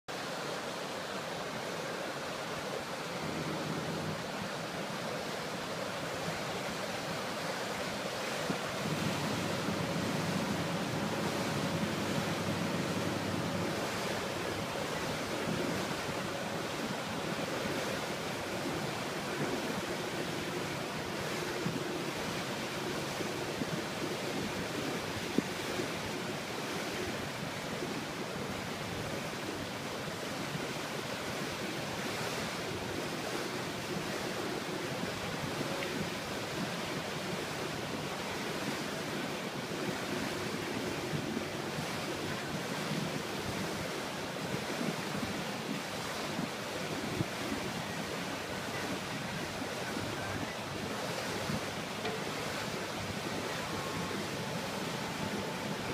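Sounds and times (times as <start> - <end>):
lake water rushing and splashing: 0.1 - 55.9
wind noise on microphone: 3.1 - 55.9.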